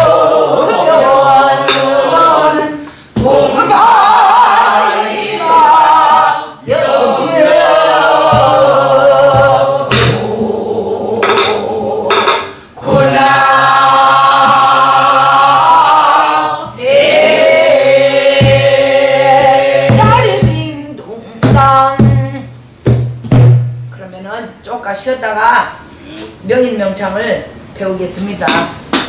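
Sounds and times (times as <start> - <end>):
barrel drum strokes: 0.0 - 2.6, 3.2 - 5.9, 6.7 - 15.9, 16.6 - 20.8, 21.4 - 24.0
woman singing folk song: 19.9 - 22.5.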